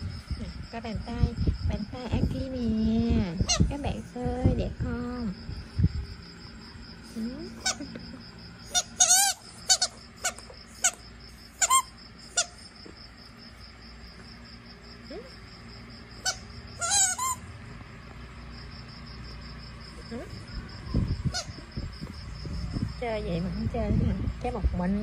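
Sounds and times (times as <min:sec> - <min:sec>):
squeaky toy squeaking: 0:08.7 - 0:11.0, 0:11.6 - 0:12.6, 0:16.2 - 0:17.4.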